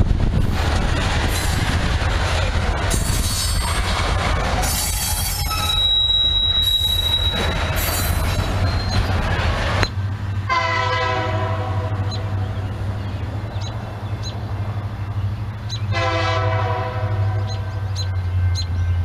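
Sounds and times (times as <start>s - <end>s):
train wheels on rails: 0.0s - 19.0s
distant locomotive air horn: 10.5s - 12.2s, 15.9s - 17.9s.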